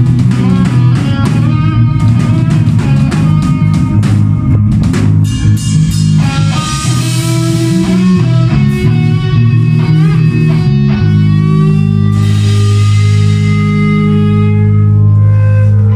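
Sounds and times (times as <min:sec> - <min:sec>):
rock music with guitars: 0:00.0 - 0:15.9.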